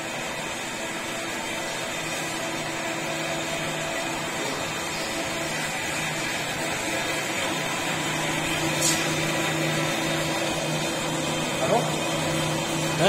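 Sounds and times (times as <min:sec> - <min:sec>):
lathe motor and belt hum: 0:00.0 - 0:13.0.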